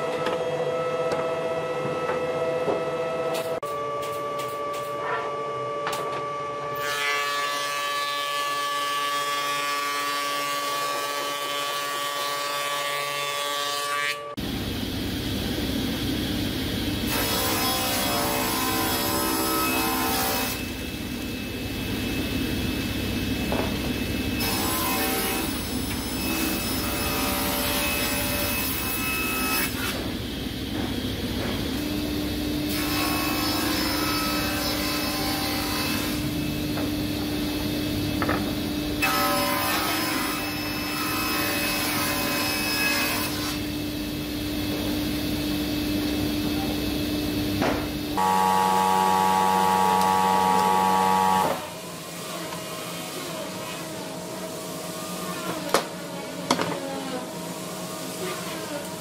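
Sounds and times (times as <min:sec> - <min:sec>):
table saw cutting wood: 0:04.4 - 0:14.4, 0:17.0 - 0:21.5, 0:23.4 - 0:30.3, 0:31.7 - 0:43.8, 0:47.8 - 0:59.0
steady machine hum: 0:14.4 - 0:28.8, 0:43.6 - 0:59.0.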